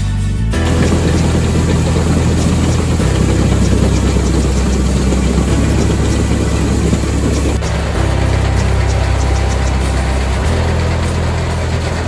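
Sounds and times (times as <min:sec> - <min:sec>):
grain pouring into hopper: 0:00.6 - 0:12.0
tractor engine running: 0:00.6 - 0:12.0.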